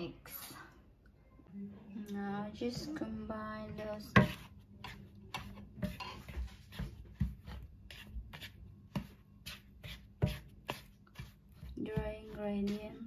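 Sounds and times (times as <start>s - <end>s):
spatula scraping plastic bowl: 3.8s - 13.0s.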